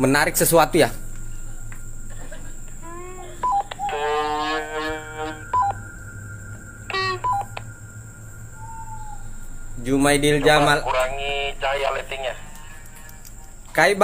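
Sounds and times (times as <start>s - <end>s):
pitched tone with overtones: 2.8s - 12.5s
two-note electronic beeps: 3.4s - 11.6s.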